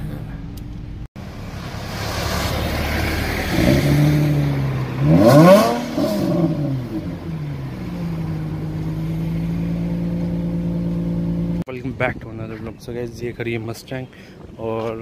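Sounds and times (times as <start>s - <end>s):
car engine revving: 0.6s - 11.7s.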